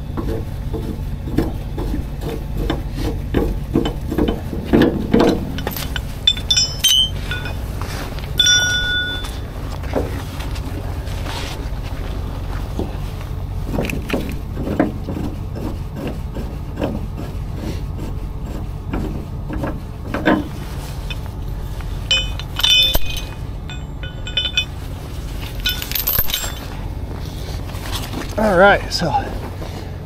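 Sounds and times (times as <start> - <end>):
truck engine idling: 0.0 - 30.0
chains and hooks clinking: 5.2 - 9.5, 22.0 - 26.8.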